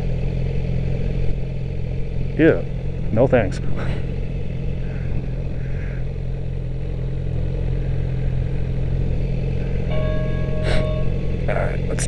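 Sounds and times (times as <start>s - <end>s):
motorcycle engine idling: 0.0s - 12.0s
clear steady tone: 9.6s - 12.0s.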